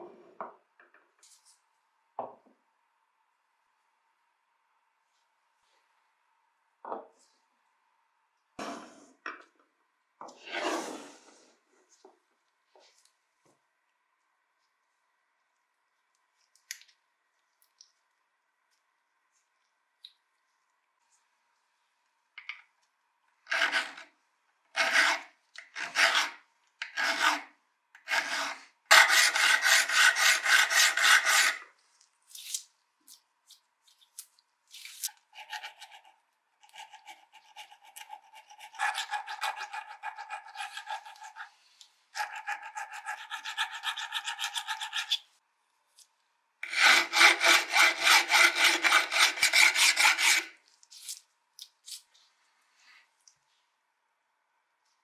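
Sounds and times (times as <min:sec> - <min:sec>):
hand file scraping steel: 0:24.8 - 0:31.6, 0:35.4 - 0:41.5, 0:42.2 - 0:45.2, 0:46.6 - 0:50.6.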